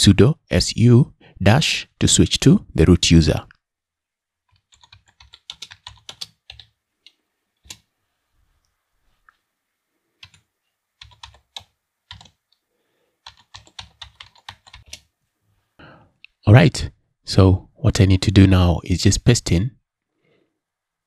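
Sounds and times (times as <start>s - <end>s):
keyboard typing: 4.4s - 7.9s, 10.2s - 12.6s, 13.2s - 15.1s.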